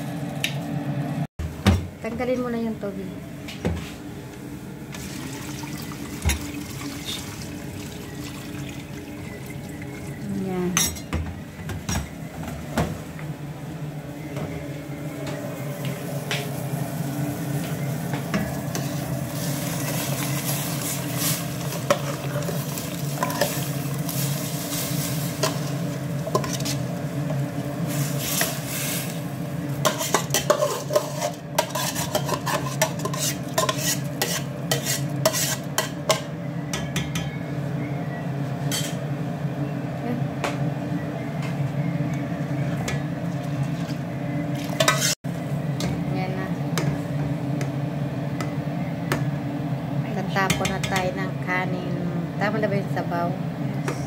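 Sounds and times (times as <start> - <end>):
stove hum and hiss: 0.0 - 54.0
metal spoon scraping bowl: 29.8 - 35.9, 44.8 - 45.2.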